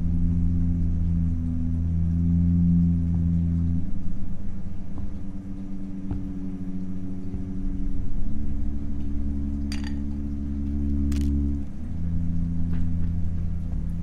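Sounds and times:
low film score drone: 0.0 - 14.0
glassy clinks: 9.7 - 10.1.

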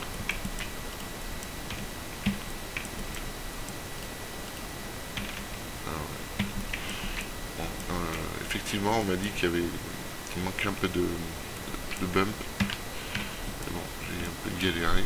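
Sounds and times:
computer keyboard clicks: 0.2 - 0.7
mouse clicks: 1.4 - 3.8.

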